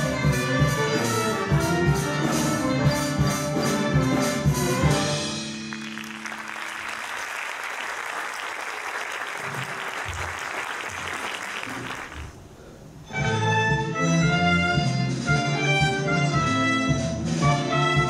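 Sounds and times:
audience applause: 0:05.7 - 0:12.5.

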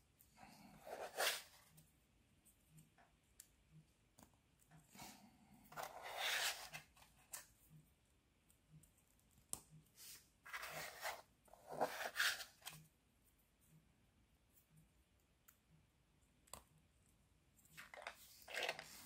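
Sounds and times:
plastic parts rubbing and clicking: 0:17.7 - 0:19.0.

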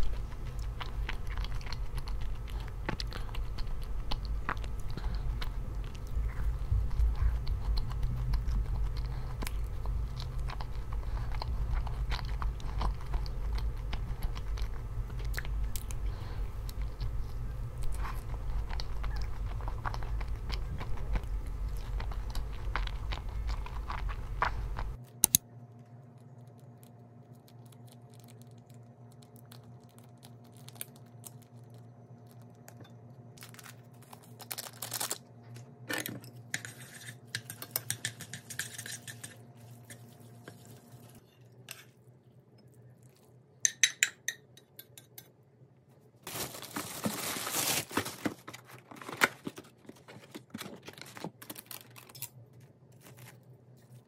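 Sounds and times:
chewing and crunching: 0:00.0 - 0:35.6, 0:36.4 - 0:43.6
low hum: 0:00.0 - 0:44.4
utensils and dishes clinking: 0:35.9 - 0:40.1.

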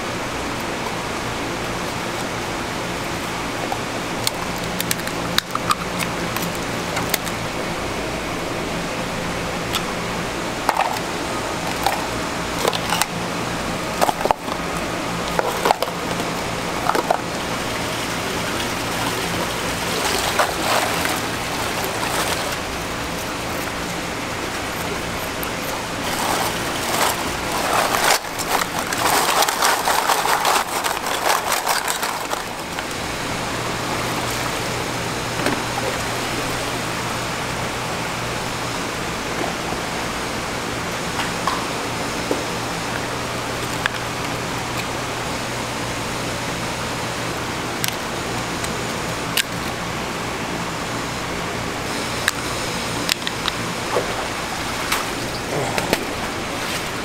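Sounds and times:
tank hum: 0:00.0 - 0:57.0
running water: 0:09.6 - 0:37.4, 0:46.7 - 0:57.0.

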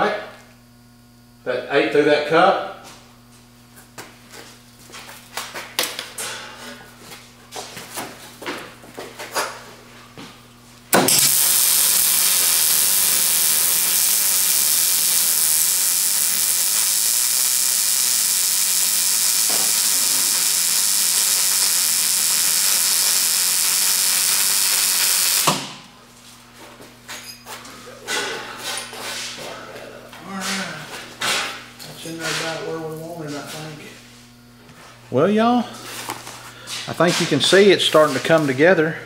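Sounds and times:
welder arc sizzling: 0:10.9 - 0:25.9.

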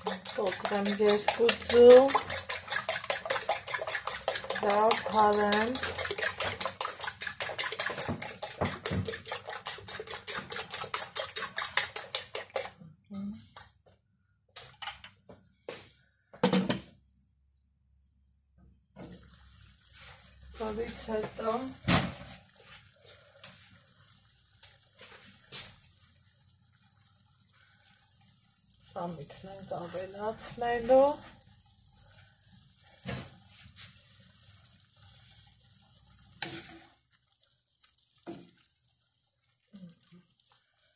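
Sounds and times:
fork beating eggs in bowl: 0:00.0 - 0:12.8.

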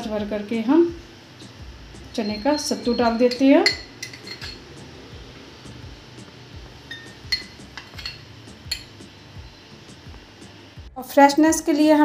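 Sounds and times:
spoon clinking against glass: 0:02.1 - 0:04.7, 0:06.8 - 0:09.1.

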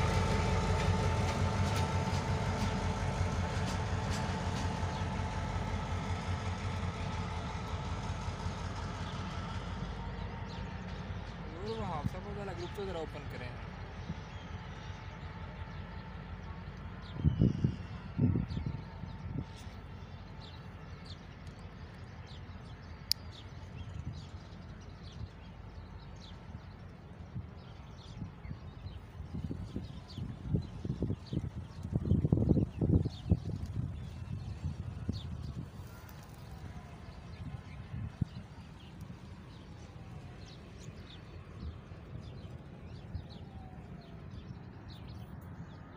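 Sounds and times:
steady low rumble: 0:28.3 - 0:45.9.

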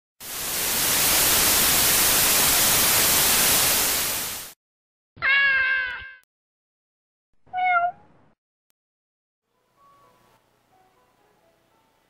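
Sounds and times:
cat meow: 0:05.2 - 0:06.2, 0:07.5 - 0:08.1.

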